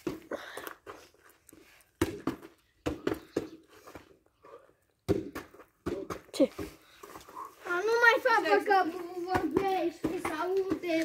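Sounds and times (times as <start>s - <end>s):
football thumping off body: 5.1s - 6.2s.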